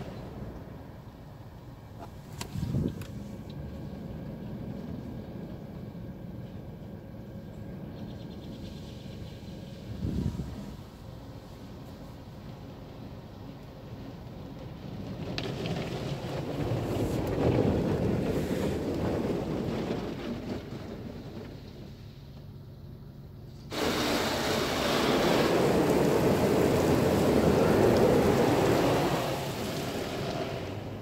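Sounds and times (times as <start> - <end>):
high-pressure water spray on car: 23.7 - 31.0.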